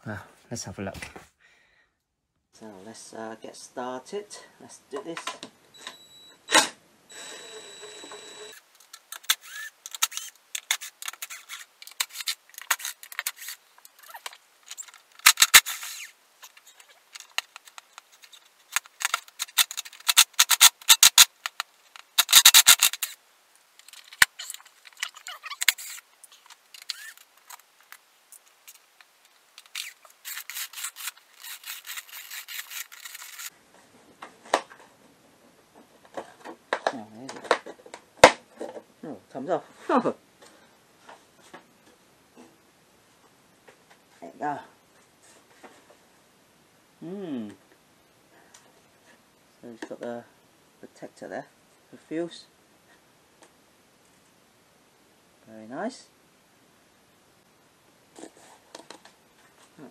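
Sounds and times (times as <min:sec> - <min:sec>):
hand tools clicking and rattling: 0:08.8 - 0:23.2, 0:23.8 - 0:27.6, 0:29.6 - 0:33.5.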